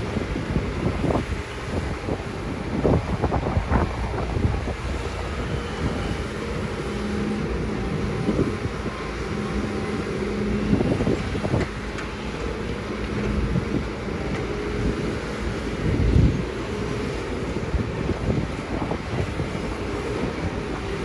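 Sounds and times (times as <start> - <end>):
excavator diesel engine under load: 0.0 - 21.0
steady droning whine: 0.0 - 21.0.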